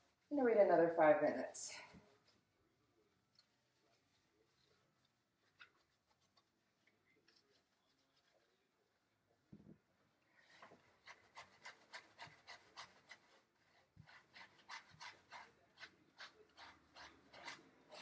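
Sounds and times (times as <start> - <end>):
gloved hand scrubbing wet fur: 10.5 - 18.0.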